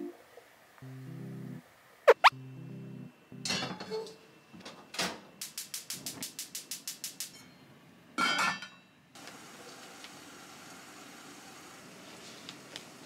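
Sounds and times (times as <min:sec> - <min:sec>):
gas burner hiss: 0:05.0 - 0:07.4, 0:09.2 - 0:13.0
gas igniter clicking rapidly: 0:05.4 - 0:07.3.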